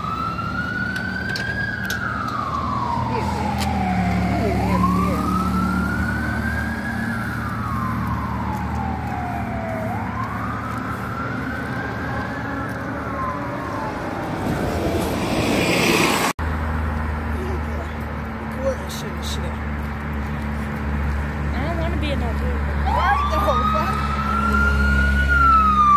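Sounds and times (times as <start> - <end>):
siren wailing: 0.0 - 16.3, 22.7 - 25.9.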